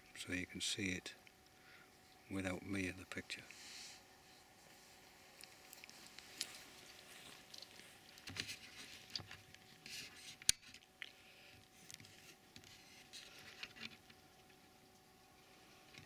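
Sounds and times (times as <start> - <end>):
rustling and handling noises: 3.9 - 16.0.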